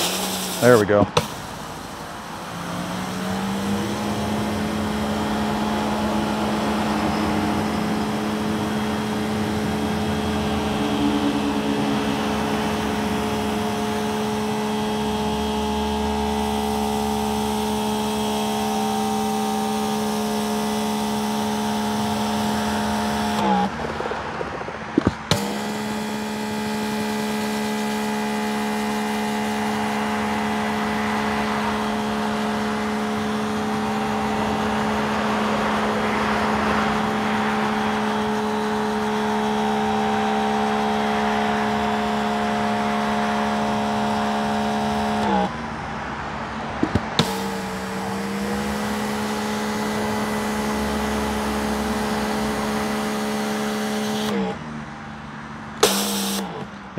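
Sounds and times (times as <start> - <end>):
water spraying onto concrete: 0.0 - 2.2
electric pressure washer whine: 0.0 - 23.8, 25.0 - 45.6, 46.8 - 54.6, 55.8 - 56.6.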